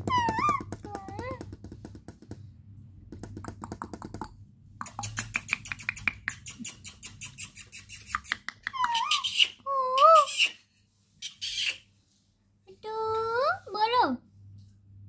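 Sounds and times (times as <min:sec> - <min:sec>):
parakeet clicking chatter: 0:03.6 - 0:09.5.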